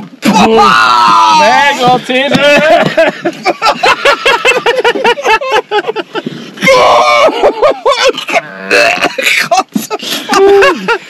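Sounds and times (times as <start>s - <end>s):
men laughing hard: 2.2s - 11.0s.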